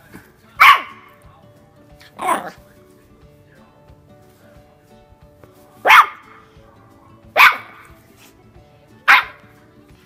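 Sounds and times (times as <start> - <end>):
puppy barking: 0.6 - 1.2, 2.1 - 2.6, 5.8 - 6.5, 7.3 - 7.9, 9.0 - 9.5.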